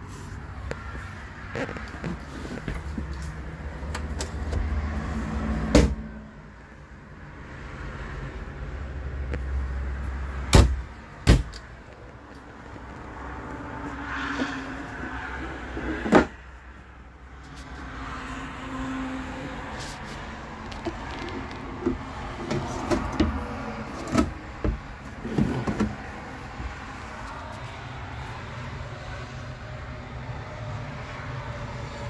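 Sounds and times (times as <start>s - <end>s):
sharp knocks of drawers shutting: 5.6s - 6.1s, 22.4s - 26.0s
drawers sliding on metal runners: 21.8s - 26.0s.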